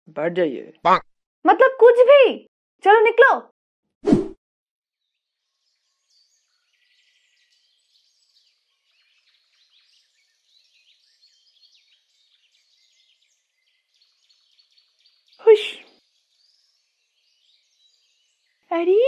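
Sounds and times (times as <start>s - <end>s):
birds chirping: 5.6s - 19.0s.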